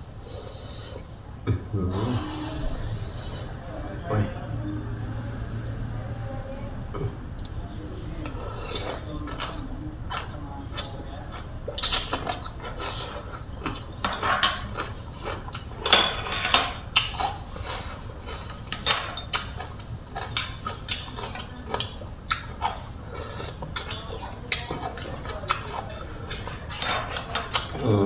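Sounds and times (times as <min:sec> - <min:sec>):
chewing: 0:06.9 - 0:28.0.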